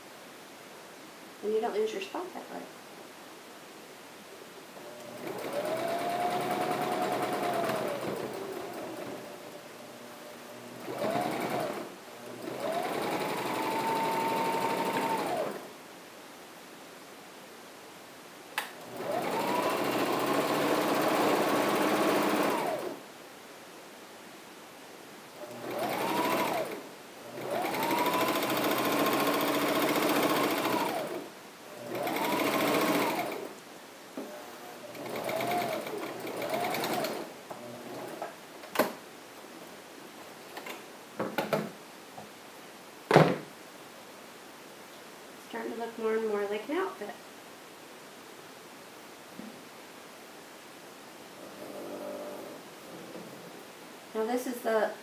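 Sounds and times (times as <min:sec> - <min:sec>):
sewing machine stitching: 0:04.9 - 0:09.3, 0:10.8 - 0:15.6, 0:18.9 - 0:23.0, 0:25.4 - 0:33.5, 0:34.4 - 0:38.2.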